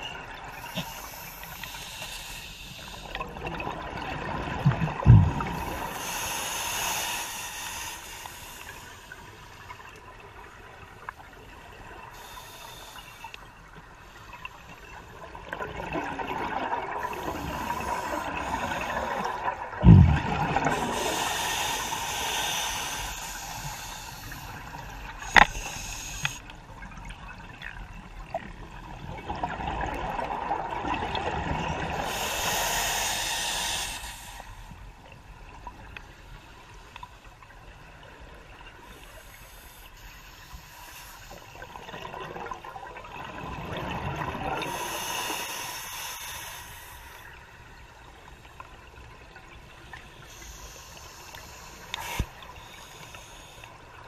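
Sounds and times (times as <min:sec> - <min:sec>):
regulator hissing inhalations: 0:00.5 - 0:03.2, 0:05.5 - 0:09.5, 0:12.1 - 0:13.4, 0:20.7 - 0:26.5, 0:32.0 - 0:34.8, 0:38.9 - 0:41.7, 0:44.6 - 0:47.4, 0:50.2 - 0:53.9
gurgling exhaled bubbles: 0:03.3 - 0:06.0, 0:15.4 - 0:22.4, 0:41.8 - 0:44.9
low thump: 0:04.7 - 0:05.5, 0:19.8 - 0:20.4.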